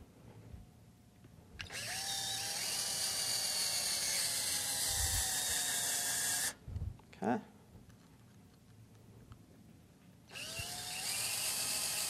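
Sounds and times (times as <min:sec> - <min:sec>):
cordless drill motor whining: 0:01.6 - 0:06.6, 0:10.3 - 0:12.0.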